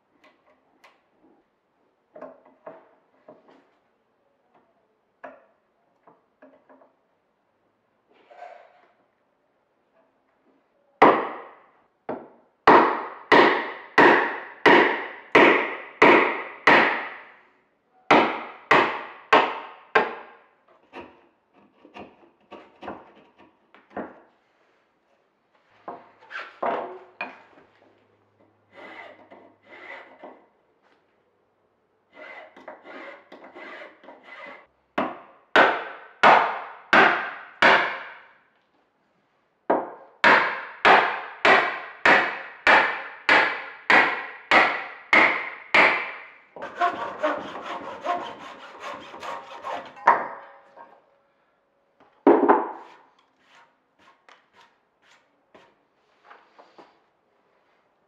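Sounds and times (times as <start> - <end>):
mallet striking chisel in wood: 11.0 - 17.2, 18.1 - 20.4, 39.7 - 50.4
chisel scraping wood: 20.8 - 23.6, 28.7 - 30.4, 32.1 - 34.7, 46.6 - 50.2, 52.8 - 56.9.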